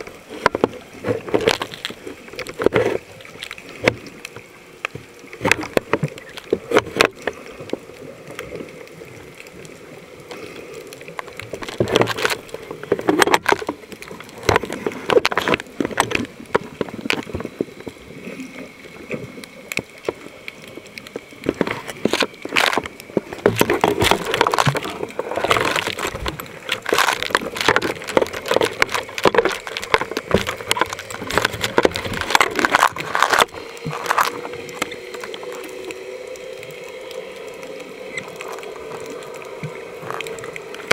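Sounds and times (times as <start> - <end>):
faint steady hum: 0.0 - 40.9
water sloshing and gurgling: 0.0 - 40.9.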